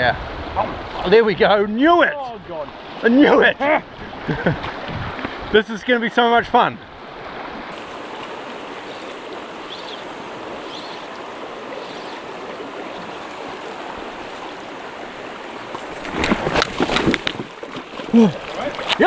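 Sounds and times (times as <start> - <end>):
stream rushing over stones: 7.0 - 19.0
water splashing close by: 7.1 - 19.0.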